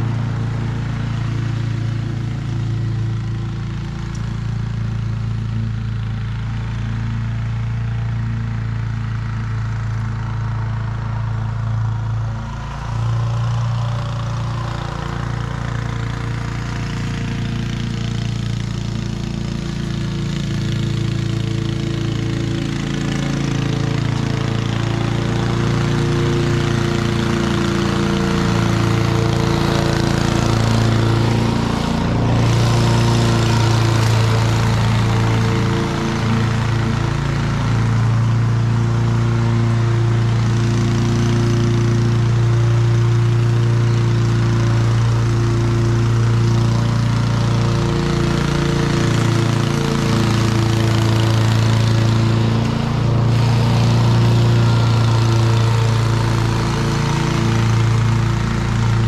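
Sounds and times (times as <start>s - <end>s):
lawn mower engine running: 0.0s - 59.0s.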